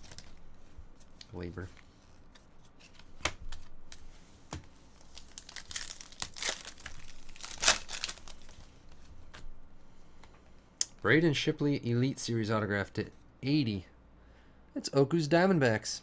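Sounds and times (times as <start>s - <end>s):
foil wrapper crinkling and tearing: 5.0s - 8.6s.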